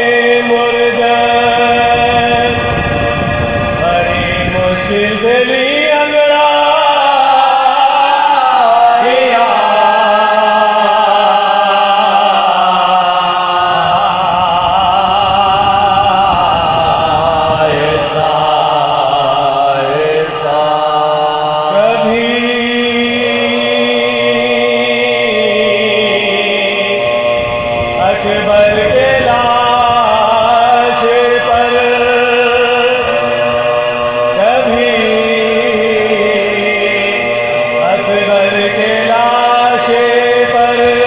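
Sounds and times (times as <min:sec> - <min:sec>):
men chanting: 0:00.0 - 0:41.0.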